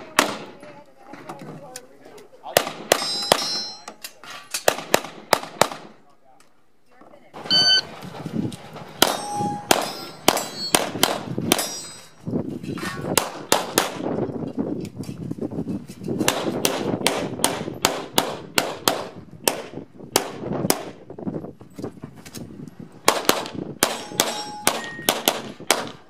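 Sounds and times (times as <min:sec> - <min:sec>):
short metallic ring: 0:03.0 - 0:03.9, 0:07.5 - 0:07.8, 0:09.1 - 0:10.8, 0:24.0 - 0:25.1
pistol gunshots: 0:04.6 - 0:05.9, 0:23.0 - 0:26.0.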